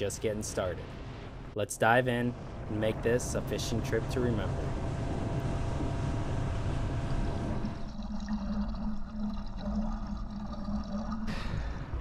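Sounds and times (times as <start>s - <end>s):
wind and water rushing past boat: 0.0s - 8.8s
steady low hum: 0.0s - 12.0s
water circulating underwater: 4.3s - 12.0s.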